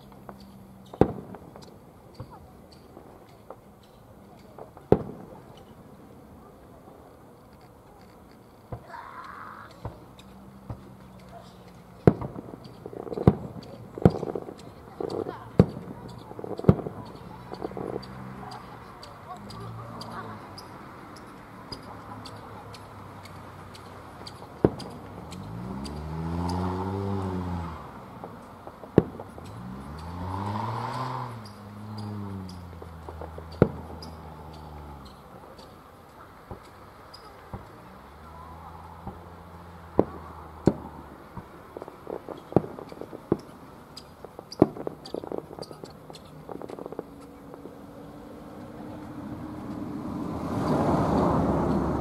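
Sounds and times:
background hiss: 0:00.0 - 0:52.0
fireworks bangs: 0:00.0 - 0:52.0
fireworks pops and crackles: 0:00.0 - 0:52.0
firework bang: 0:00.8 - 0:02.4, 0:12.0 - 0:18.1, 0:28.2 - 0:30.0, 0:39.9 - 0:43.5
faint irregular ticking: 0:07.1 - 0:50.0
car driving past: 0:15.1 - 0:35.8, 0:36.4 - 0:52.0.

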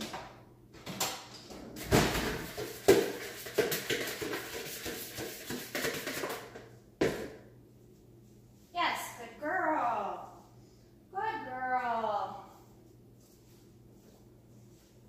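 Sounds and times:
kitchen items knocking and rattling: 0:00.0 - 0:07.4.

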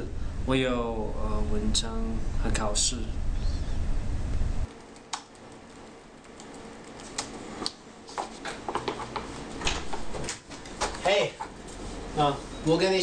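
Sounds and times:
low hum: 0:00.0 - 0:07.0
laptop keyboard typing: 0:04.7 - 0:07.8.

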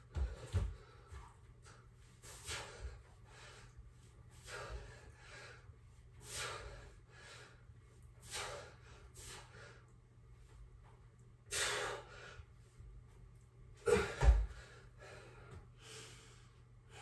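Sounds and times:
man breathing hard: 0:02.2 - 0:09.9, 0:11.5 - 0:12.7, 0:13.8 - 0:17.0.

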